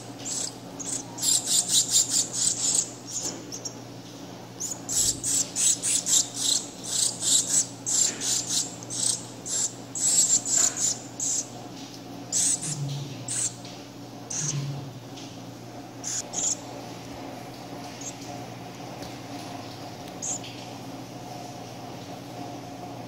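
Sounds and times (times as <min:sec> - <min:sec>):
nestling begging calls: 0:00.2 - 0:03.8, 0:04.6 - 0:11.6, 0:12.3 - 0:13.6, 0:14.3 - 0:14.6, 0:16.0 - 0:16.7, 0:20.2 - 0:20.4.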